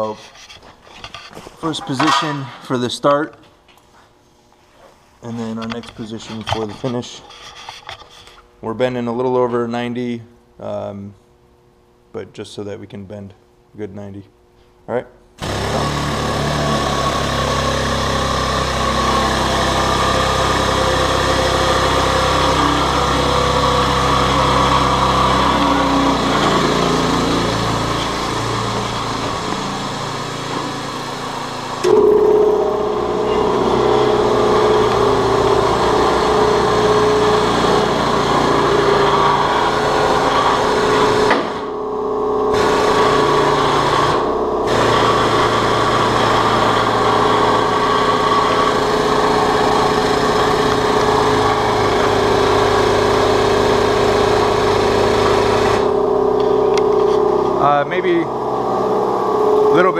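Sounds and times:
air-driven pump running: 14.6s - 59.9s
higher steady tone: 18.8s - 30.2s, 31.8s - 37.4s, 55.9s - 59.9s.

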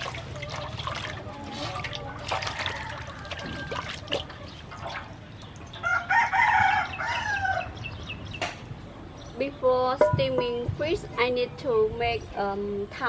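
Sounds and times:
water splashing in metal basin: 0.0s - 5.9s
rooster crowing: 2.4s - 4.2s, 5.8s - 7.8s.

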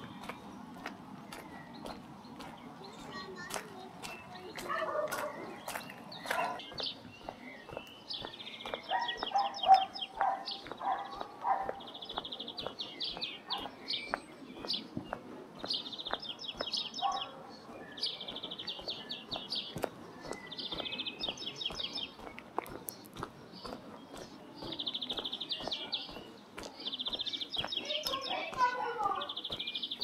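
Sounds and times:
songbirds trilling: 0.0s - 30.0s.

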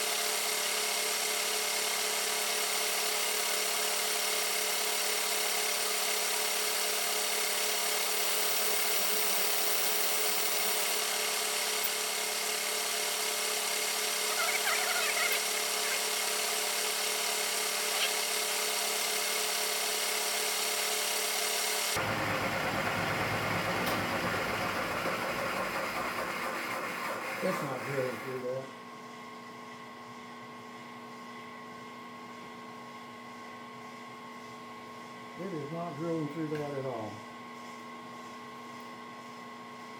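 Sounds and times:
drill whining: 0.0s - 24.3s.

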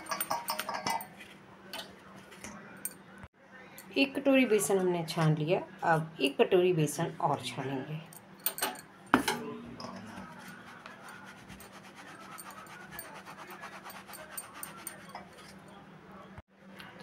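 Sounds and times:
flour sifted through sieve: 10.2s - 15.7s.

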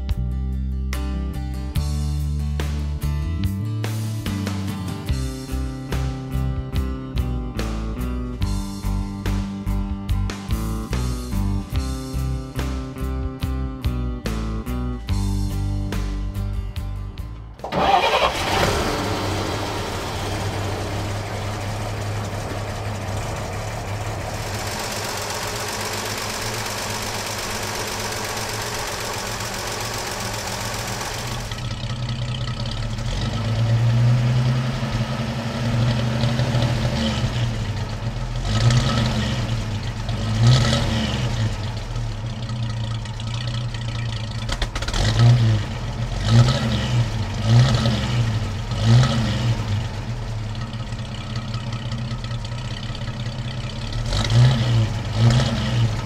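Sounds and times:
truck engine starting and idling: 14.2s - 56.0s.

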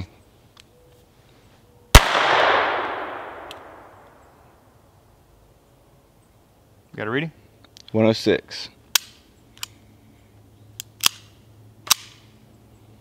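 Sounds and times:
pistol shot with echo: 1.9s - 4.2s.

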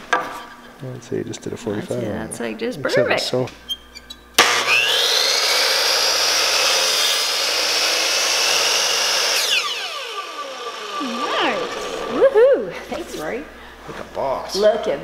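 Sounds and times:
saw cutting wooden board: 4.4s - 12.4s
miter saw whining: 4.4s - 12.9s.

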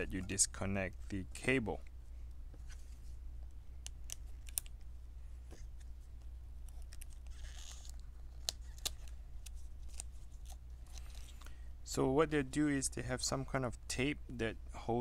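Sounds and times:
tape rustling: 5.5s - 11.6s.

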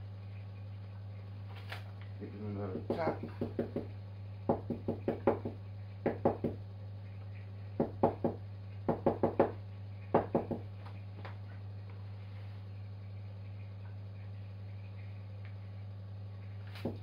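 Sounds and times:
steady low hum: 0.0s - 17.0s
knocks on plastic cartridge: 2.9s - 3.9s.

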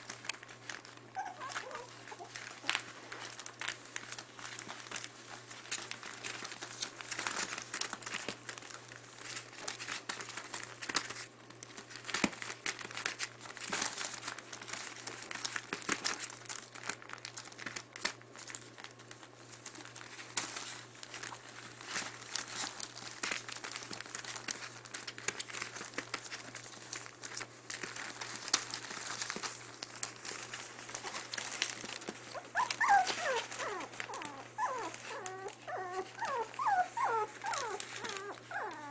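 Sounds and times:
newspaper crinkling: 0.0s - 38.9s
puppy whimpering: 1.1s - 3.4s, 31.0s - 38.9s.

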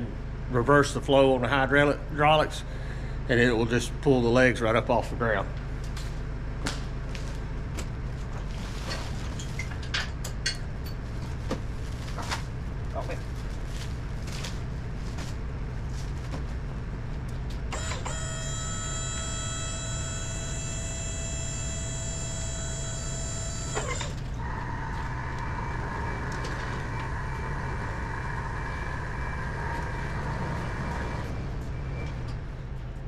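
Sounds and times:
sawmill carriage lower whine: 0.0s - 33.0s
high whine: 10.4s - 33.0s
sawmill humming: 16.6s - 32.4s.

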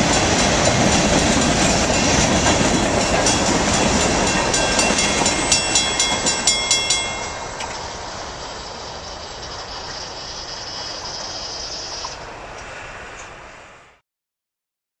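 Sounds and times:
railroad crossing bell ringing: 0.0s - 8.6s
freight train rumble: 0.0s - 14.0s.

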